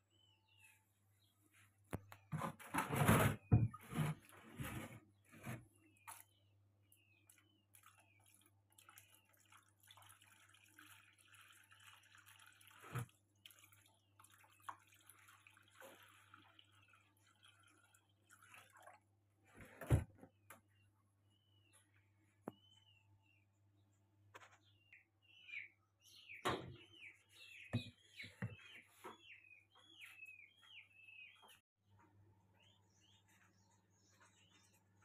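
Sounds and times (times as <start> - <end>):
water trickling into plastic tray: 7.0 - 19.2.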